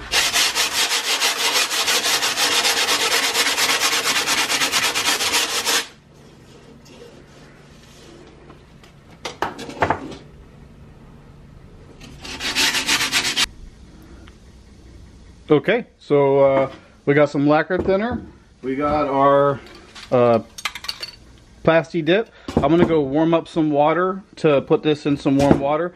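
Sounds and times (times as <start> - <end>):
sandpaper rubbing on metal: 0.0 - 8.2, 12.0 - 13.5.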